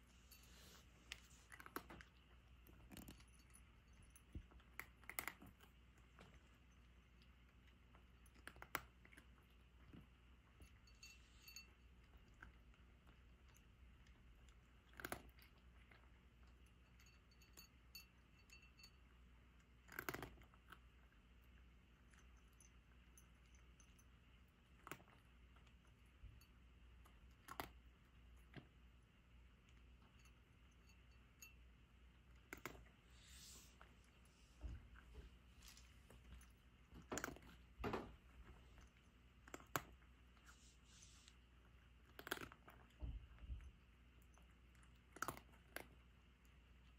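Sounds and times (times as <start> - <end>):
cat crunching dry food: 0.2 - 10.8, 11.7 - 17.3, 19.0 - 46.9.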